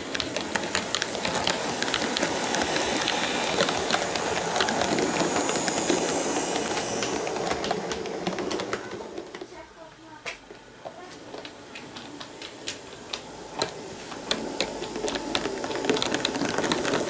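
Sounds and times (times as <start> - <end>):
model train motor rumble: 0.0 - 9.3
wheels clicking on rails: 0.0 - 17.0.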